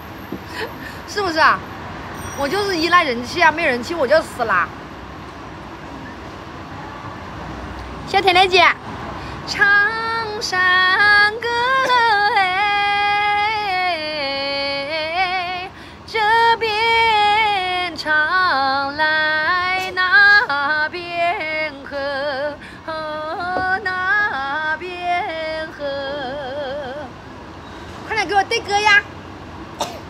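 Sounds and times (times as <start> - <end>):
woman singing folk song: 9.5 - 27.1.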